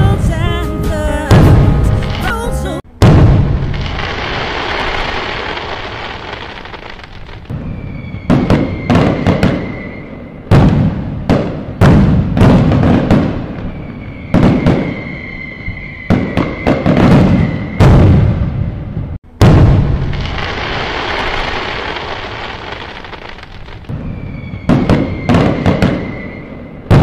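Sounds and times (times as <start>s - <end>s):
fireworks crackling: 1.4s - 18.4s, 19.3s - 27.0s
loud sharp firework bangs: 2.9s - 27.0s.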